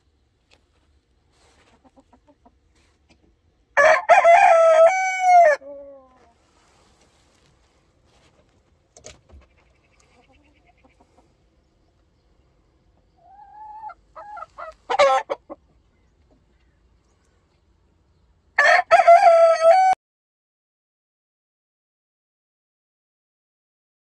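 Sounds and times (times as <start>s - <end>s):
rooster crowing: 3.8s - 5.7s, 18.6s - 20.0s.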